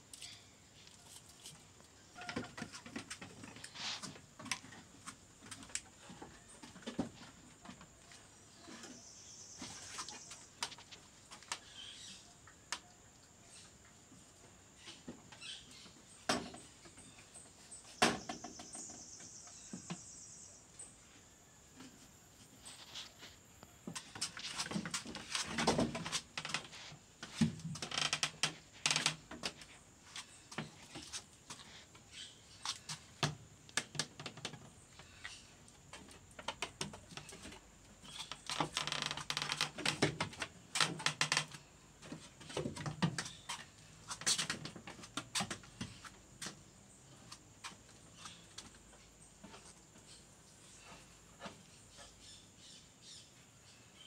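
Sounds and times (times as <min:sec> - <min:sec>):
hooves clattering on wood: 0:23.8 - 0:50.3.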